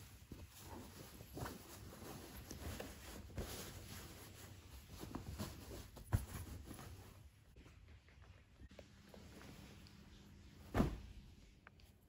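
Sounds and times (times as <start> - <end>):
sheet rustling and scraping: 0.0 - 7.3.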